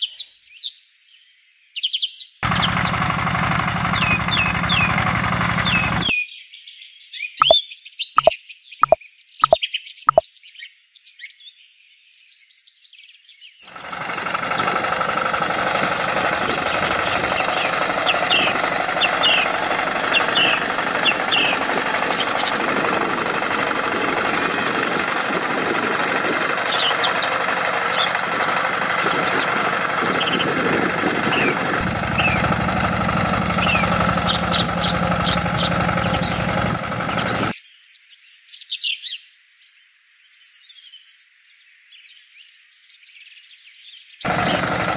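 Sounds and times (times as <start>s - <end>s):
birds chirping: 2.4s - 6.1s, 7.4s - 10.2s, 13.7s - 37.6s, 44.2s - 44.9s
tractor running: 2.4s - 6.1s, 13.7s - 37.6s, 44.3s - 44.9s.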